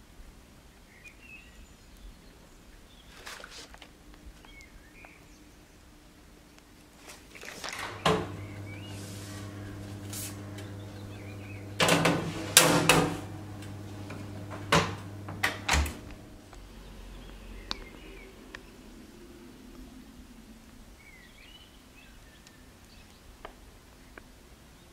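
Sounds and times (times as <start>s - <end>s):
oven low hum: 7.7s - 16.9s
oven door and tray knocks: 11.7s - 13.4s, 14.1s - 16.1s.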